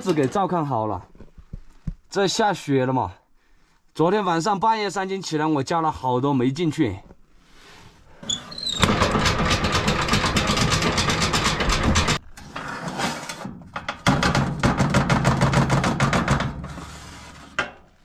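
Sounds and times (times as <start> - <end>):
metallic rattling and scraping at stove: 8.2 - 17.9.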